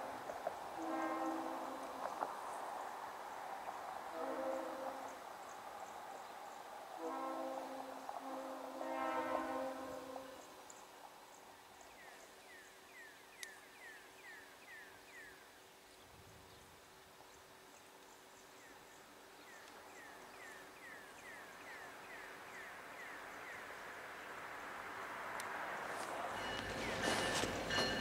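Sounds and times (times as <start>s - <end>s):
diesel locomotives rumbling: 24.2s - 28.0s.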